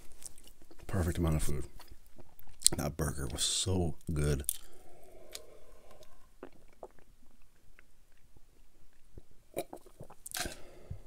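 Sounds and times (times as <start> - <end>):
person drinking and swallowing: 4.4 - 8.3, 8.9 - 11.0
wet mouth clicks: 4.4 - 8.3, 8.9 - 10.6.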